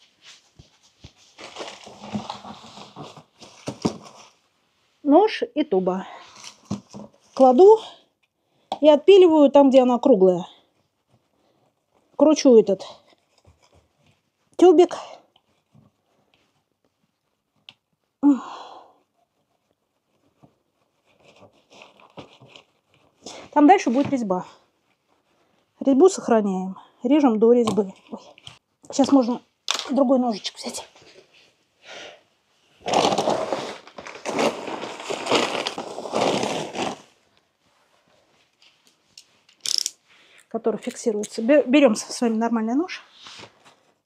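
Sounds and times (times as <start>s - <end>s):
plastic bags rustling: 0.5s - 4.4s, 32.8s - 37.3s.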